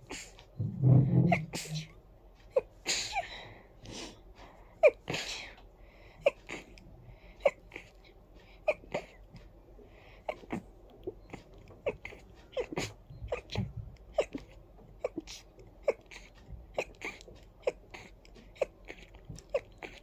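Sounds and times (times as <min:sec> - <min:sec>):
person stifling sneezes: 0:01.3 - 0:01.9, 0:02.8 - 0:03.3.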